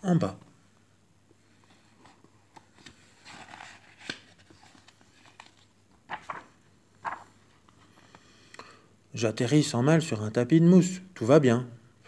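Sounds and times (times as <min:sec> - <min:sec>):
faint handling noises: 0:01.3 - 0:08.3
paper page turning: 0:02.0 - 0:07.7
page settling click: 0:06.1 - 0:07.3.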